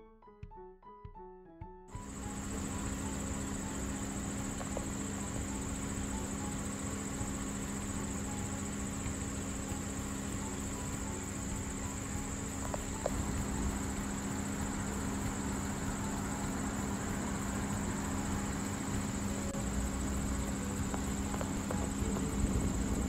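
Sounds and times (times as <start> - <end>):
insects buzzing: 2.0 - 23.0
low steady hum: 2.0 - 23.0.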